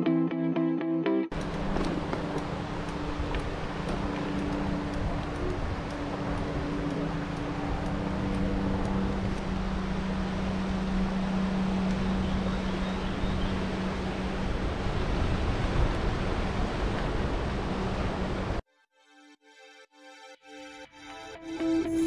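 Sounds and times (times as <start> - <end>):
higher hum: 1.3 - 16.0
low hum: 1.3 - 18.6
wind rushing over microphone: 1.4 - 18.6.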